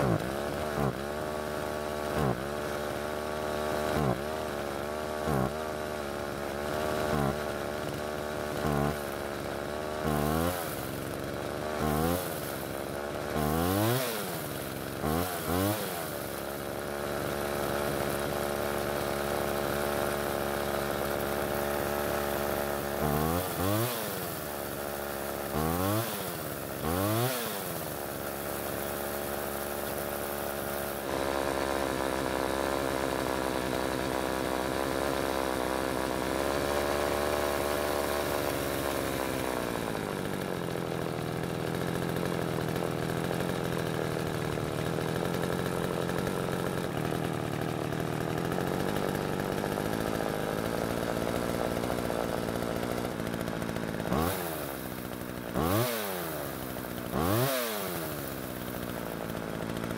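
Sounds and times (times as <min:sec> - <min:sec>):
chainsaw engine idling and revving: 0:00.0 - 0:59.9.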